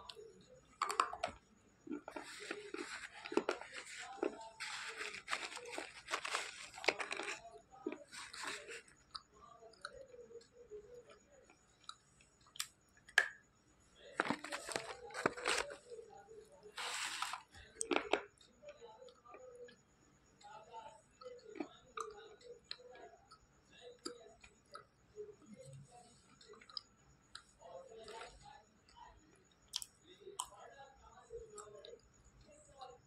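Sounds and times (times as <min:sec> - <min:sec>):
gritty crunching of chewing: 0:00.8 - 0:09.3.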